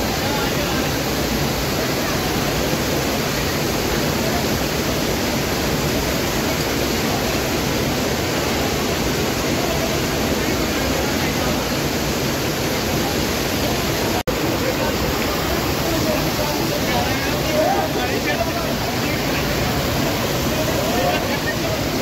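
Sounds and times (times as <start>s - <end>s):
waterfall splashing over rock: 0.0s - 22.0s.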